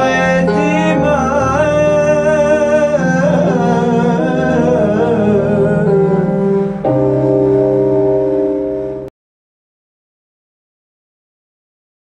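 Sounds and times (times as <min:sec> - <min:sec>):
sustained instrumental backing: 0:00.0 - 0:09.1.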